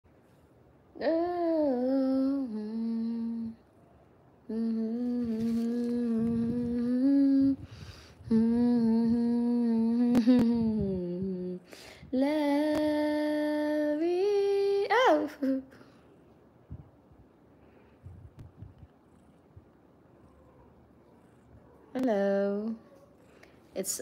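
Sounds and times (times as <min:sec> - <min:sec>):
woman humming slow tune: 0:01.0 - 0:03.7, 0:04.5 - 0:15.7.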